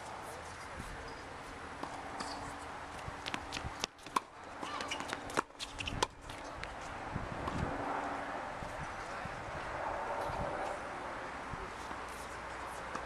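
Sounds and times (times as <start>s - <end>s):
tennis balls struck by rackets: 3.2s - 6.8s, 11.8s - 13.0s.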